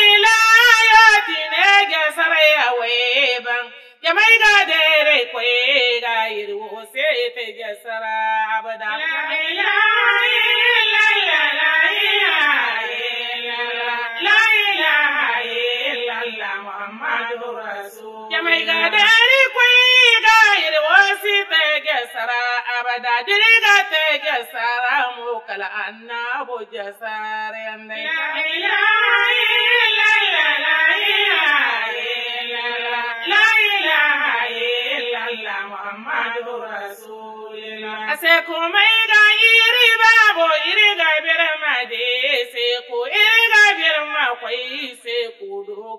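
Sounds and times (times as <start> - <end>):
man chanting into a microphone: 0.0 - 8.9, 17.3 - 27.7
person singing a devotional chant: 0.0 - 45.9.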